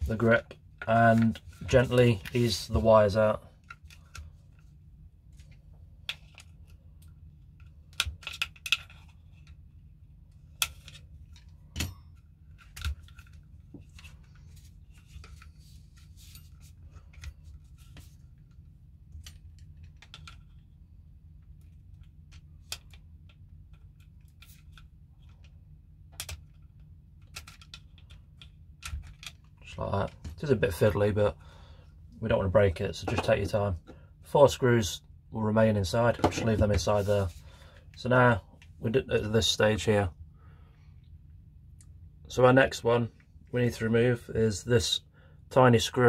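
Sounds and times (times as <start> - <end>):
plastic and metal parts clicking: 26.1 - 29.5.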